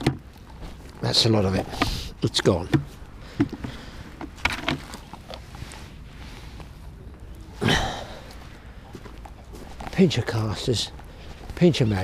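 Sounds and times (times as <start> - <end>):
hands rustling plastic tubs: 0.0 - 7.0.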